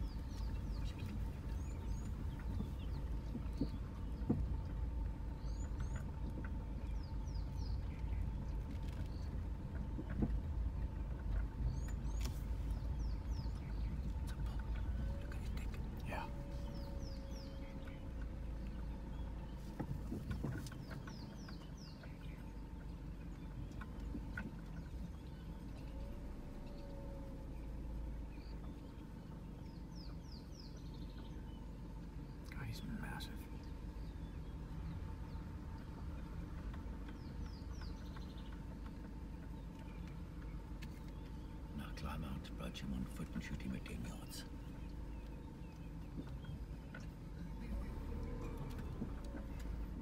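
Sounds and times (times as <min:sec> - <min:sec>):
birds chirping: 0:00.0 - 0:50.0
vehicle engine rumbling: 0:00.0 - 0:50.0
birds whistling: 0:11.6 - 0:19.7.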